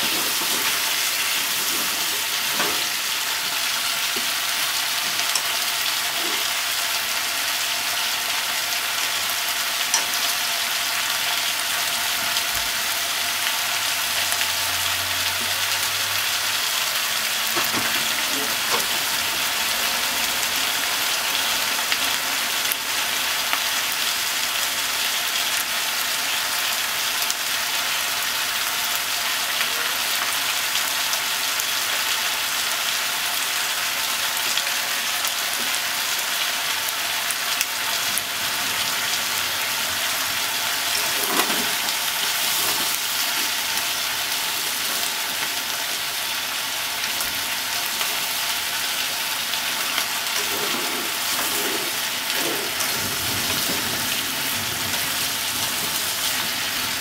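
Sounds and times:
food sizzling in a pot: 0.0s - 57.0s
chopsticks scraping food: 40.9s - 43.6s, 50.4s - 53.0s.

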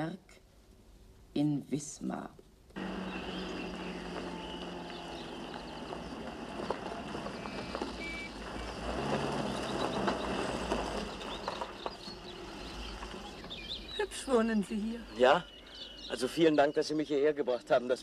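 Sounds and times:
tyres crunching on gravel: 2.8s - 14.4s
car driving slowly: 2.8s - 16.2s.

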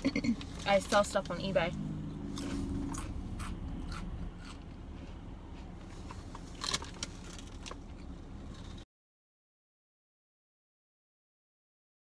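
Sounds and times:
low steady hum: 0.0s - 8.8s.

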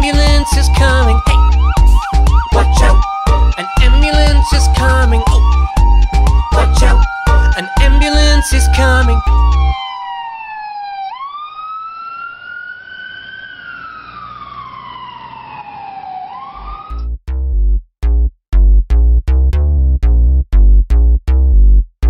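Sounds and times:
song with heavy beat: 0.0s - 9.5s
electronic music with drum beats: 0.0s - 9.8s
ambulance siren wailing: 0.0s - 17.0s.

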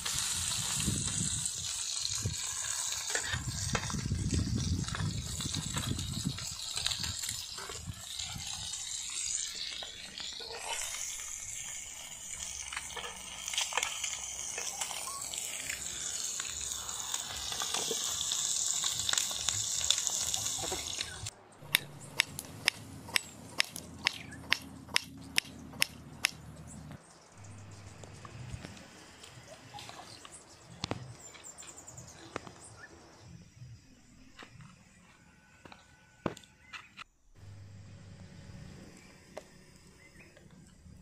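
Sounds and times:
egg sizzling in a frying pan: 0.0s - 21.3s.

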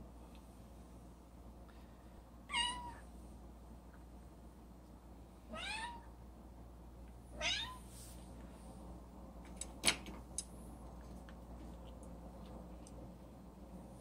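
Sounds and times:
cat meowing: 2.5s - 3.0s, 5.5s - 6.1s, 7.4s - 7.8s.

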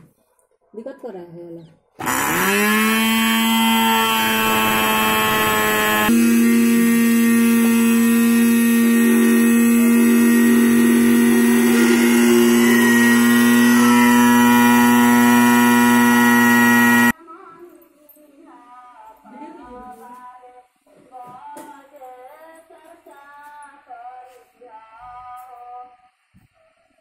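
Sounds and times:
spice grinder motor whining: 2.0s - 17.2s.

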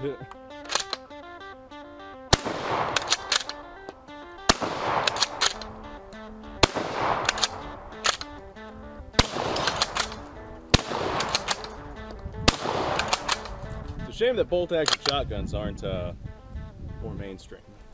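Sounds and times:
background music: 0.0s - 17.9s
shotgun bolt clacking: 0.2s - 14.1s, 14.7s - 15.2s
shotgun shots: 2.3s - 14.0s.

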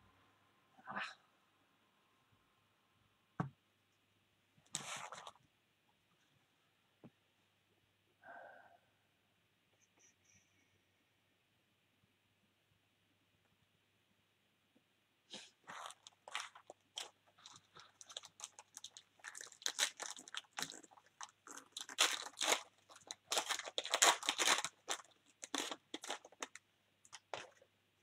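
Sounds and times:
foil wrapper tearing and crinkling: 15.7s - 27.5s.

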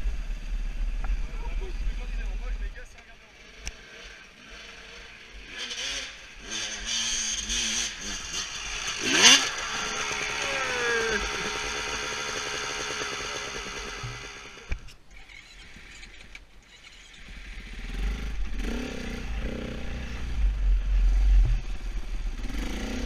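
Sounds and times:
dirt bike engine revving: 3.3s - 14.7s, 17.2s - 23.0s.

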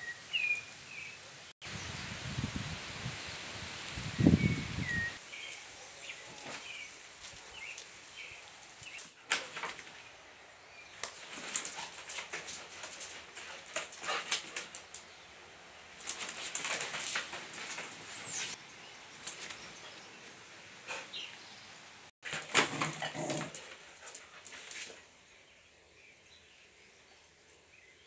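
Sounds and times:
sharp clicks on tiled floor: 9.0s - 9.9s, 11.0s - 15.1s, 16.0s - 18.6s, 22.2s - 24.8s
cone collar rustling and scraping: 16.0s - 18.6s.

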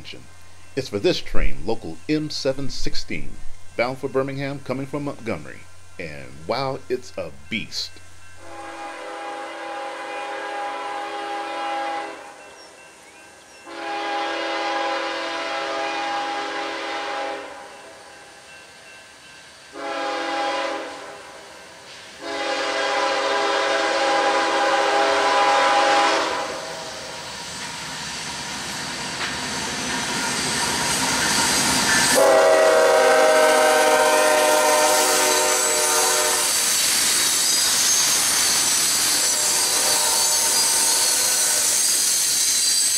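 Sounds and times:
train cars rushing and rattling: 0.0s - 42.9s
locomotive air horn: 8.4s - 12.4s, 13.7s - 17.7s, 19.8s - 21.4s, 22.2s - 26.9s, 32.1s - 36.7s, 39.2s - 41.9s.

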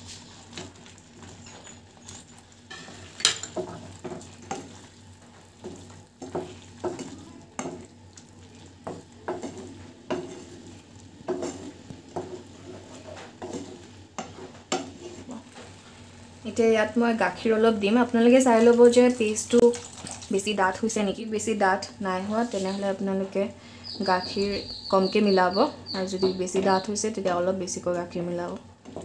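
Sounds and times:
spatula scraping a pan: 0.0s - 16.1s
gravy sizzling: 0.0s - 29.0s.

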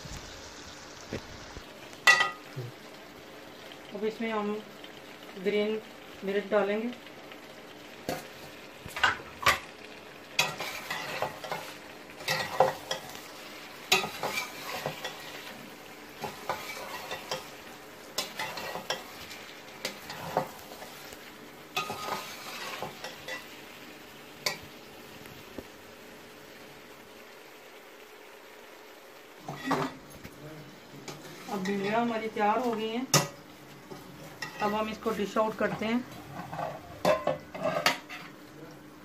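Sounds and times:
curry sizzling: 0.0s - 39.0s
metal spatula scraping pot: 13.9s - 15.5s, 18.2s - 20.9s, 21.8s - 23.4s, 31.1s - 32.0s, 35.6s - 38.4s.

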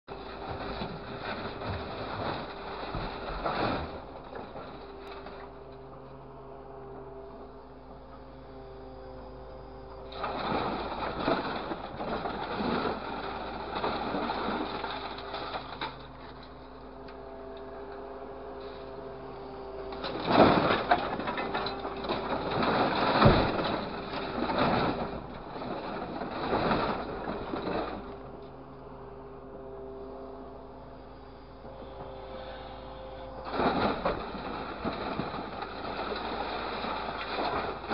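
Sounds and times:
scrap metal crunching and clattering: 0.1s - 6.4s, 10.1s - 28.5s, 33.2s - 37.9s
engine and hydraulic hum: 0.1s - 37.9s.

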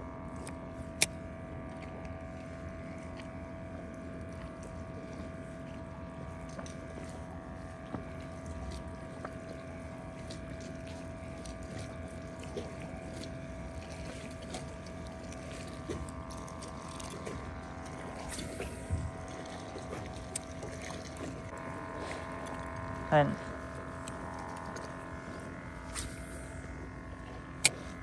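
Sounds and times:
boat engine humming: 0.0s - 28.0s
small ticks: 19.9s - 22.7s, 24.0s - 24.9s.

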